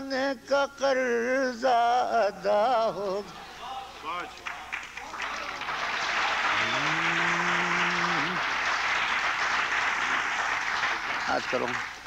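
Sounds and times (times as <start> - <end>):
audience applauding: 3.6 - 12.0
man's voice holding long note: 6.6 - 8.4.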